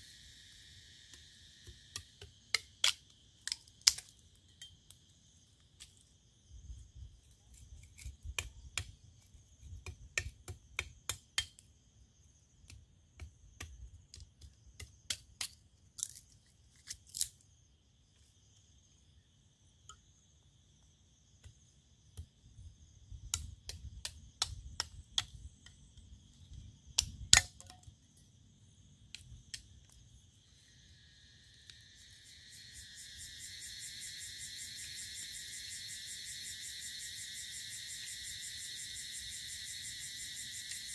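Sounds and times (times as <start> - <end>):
insects chirring: 0.0 - 40.9
pulsing insect chorus: 0.0 - 40.9
dry sticks cracking and snapping: 2.8 - 4.3, 15.1 - 17.3.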